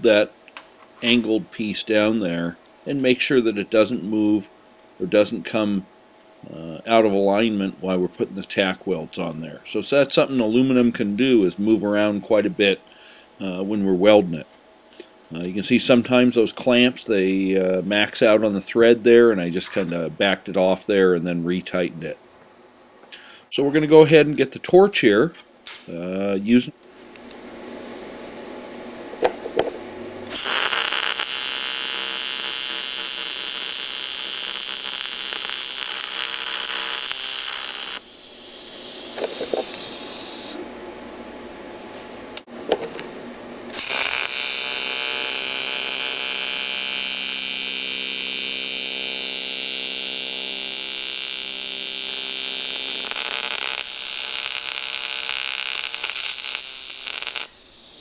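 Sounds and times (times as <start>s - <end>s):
welding arc buzzing: 29.2s - 40.6s, 43.7s - 58.0s.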